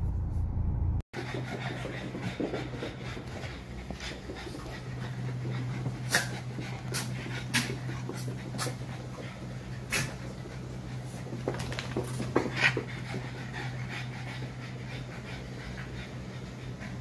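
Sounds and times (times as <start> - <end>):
low hum: 0.0 - 12.0
dog panting: 1.2 - 17.0.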